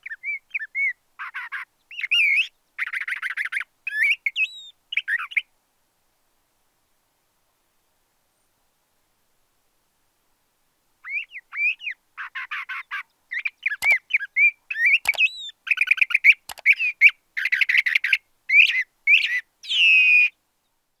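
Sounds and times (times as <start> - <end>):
bird singing whistles and trills: 0.0 - 1.0, 1.9 - 5.5, 11.0 - 20.4.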